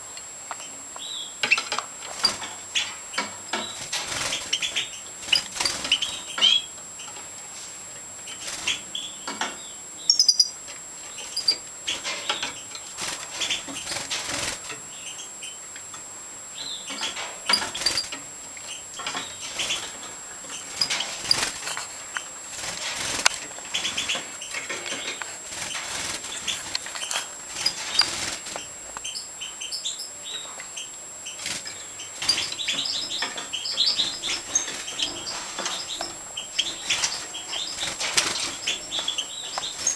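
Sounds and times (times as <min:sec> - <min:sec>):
bird chirps: 0:00.6 - 0:07.2, 0:08.3 - 0:14.0, 0:14.9 - 0:15.6, 0:16.5 - 0:21.8, 0:23.7 - 0:39.9
birds fluttering wings: 0:01.4 - 0:06.6, 0:08.3 - 0:09.0, 0:11.2 - 0:14.9, 0:16.9 - 0:18.3, 0:19.0 - 0:28.8, 0:31.4 - 0:39.9.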